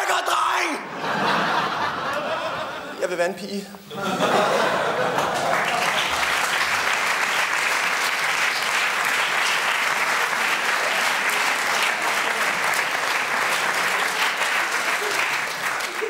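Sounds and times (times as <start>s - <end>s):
audience applauding: 4.4s - 16.0s.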